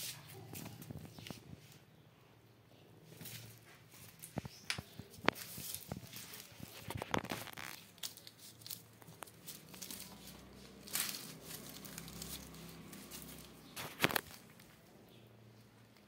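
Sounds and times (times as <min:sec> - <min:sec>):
onion skins rustling: 0:03.0 - 0:16.0
onions clicking and knocking: 0:03.2 - 0:14.9.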